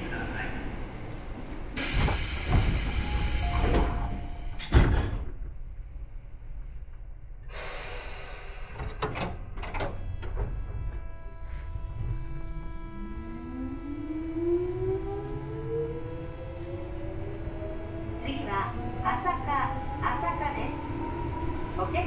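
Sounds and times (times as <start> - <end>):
train air hissing: 1.8 - 4.7, 7.4 - 9.0
train doors thumping shut: 1.8 - 5.7, 8.7 - 10.9.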